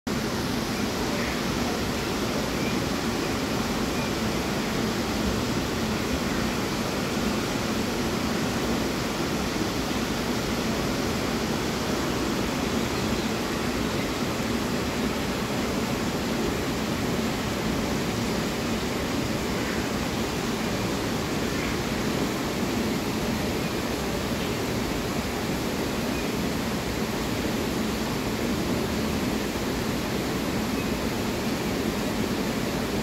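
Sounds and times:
steady rushing noise: 0.1s - 33.0s.

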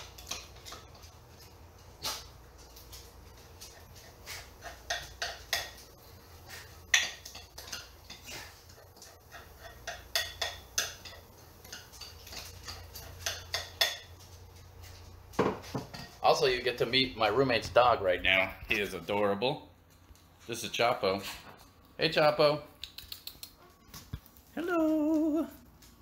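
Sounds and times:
utensils tapping a pan: 4.6s - 6.0s, 6.8s - 8.2s, 9.0s - 14.2s.

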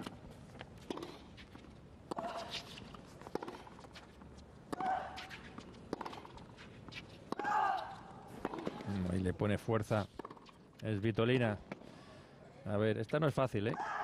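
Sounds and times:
tennis ball bouncing on hard court: 0.8s - 1.3s, 3.2s - 8.9s, 10.1s - 10.6s.

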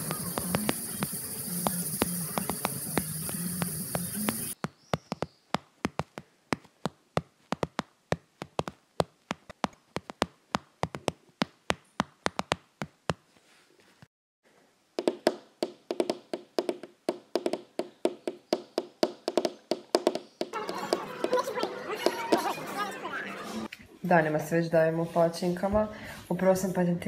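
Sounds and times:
cicadas buzzing: 0.0s - 4.6s.

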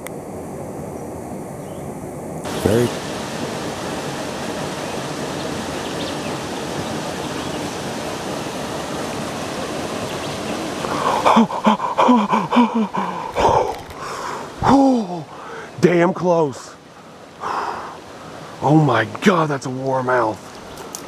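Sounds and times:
river water rushing over rocks: 2.4s - 21.0s
man's voice: 14.6s - 16.8s, 18.6s - 20.4s.

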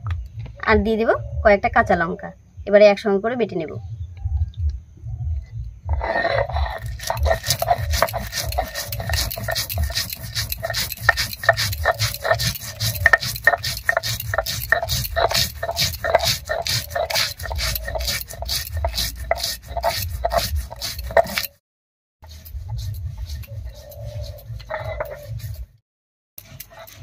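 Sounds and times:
stone scraping rasp: 5.9s - 21.6s, 22.2s - 25.8s, 26.4s - 27.0s.

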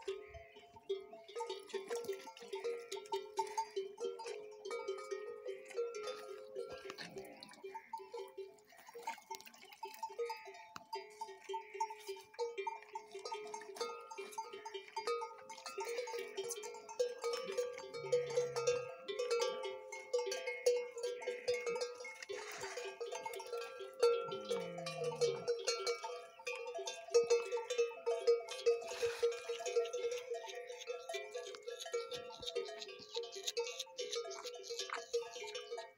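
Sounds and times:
metal bells clanking: 10.0s - 35.9s
camel calls: 21.3s - 26.0s.

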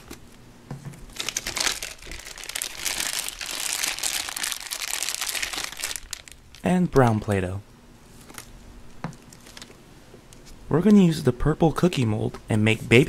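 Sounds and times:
plastic crinkling and rustling: 1.1s - 6.7s, 8.1s - 9.8s.

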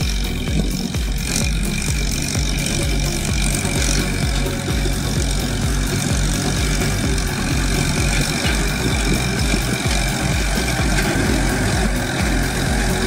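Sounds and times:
diesel tractor running under load: 0.0s - 13.0s.

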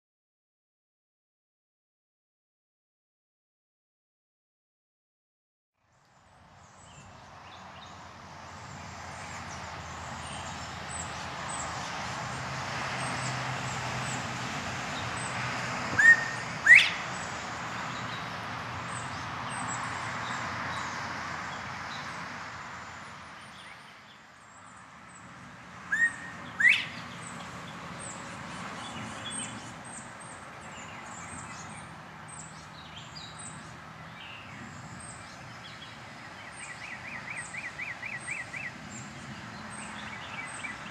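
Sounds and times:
steady outdoor hiss: 5.8s - 40.9s
quail two-note whistle call: 16.0s - 17.0s.

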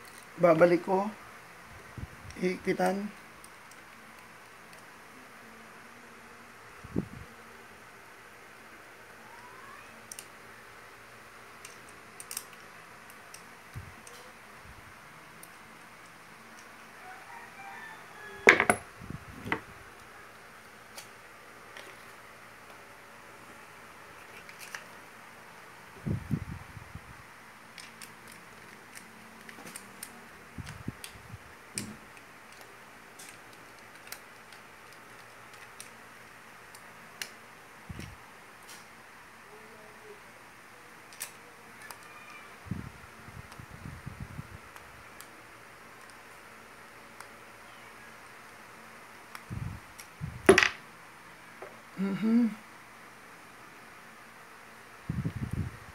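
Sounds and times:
parts being handled thumps: 18.4s - 18.9s, 50.5s - 50.8s.

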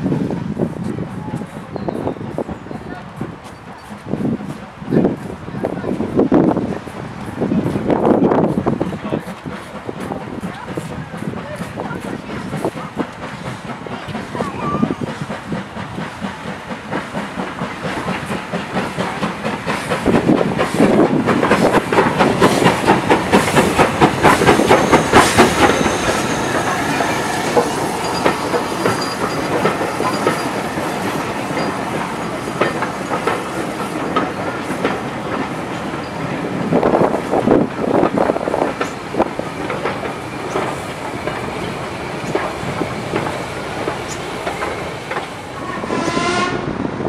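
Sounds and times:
steam locomotive exhaust: 0.2s - 47.0s
train wheels clattering over rail joints: 3.1s - 45.8s.

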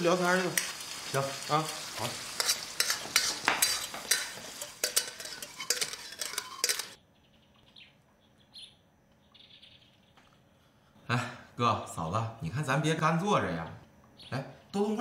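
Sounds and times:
utensils clinking on pots and dishes: 2.4s - 7.0s.

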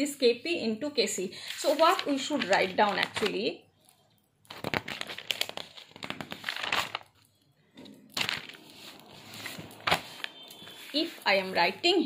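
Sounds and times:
paper rustling and crinkling: 1.5s - 3.4s, 4.5s - 7.3s, 8.1s - 11.6s.

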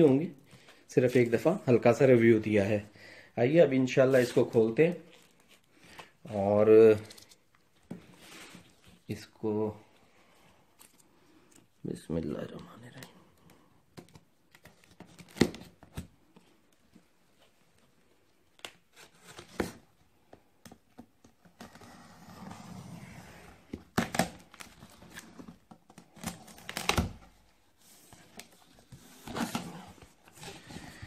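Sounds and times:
packing tape tearing: 26.0s - 27.2s.

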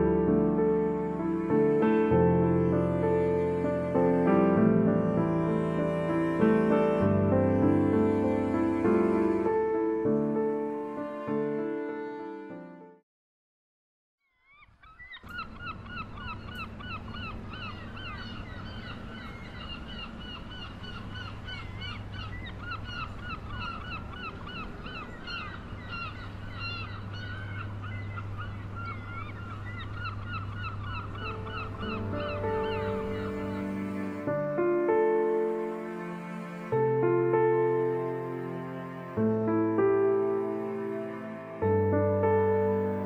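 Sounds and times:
flock of birds calling: 14.5s - 34.3s
low city rumble: 15.2s - 43.0s.

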